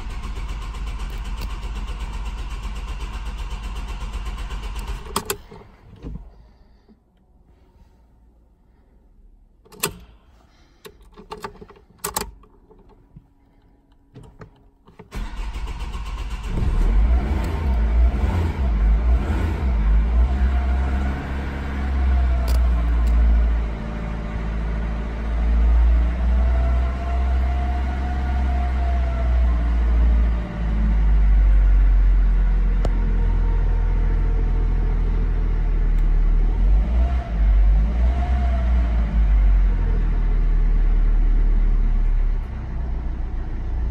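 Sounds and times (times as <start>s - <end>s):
key and ignition clicks: 0.2s - 2.7s, 3.6s - 5.6s, 9.6s - 10.2s, 10.8s - 13.0s, 22.4s - 23.2s
diesel engine revving: 15.1s - 43.9s.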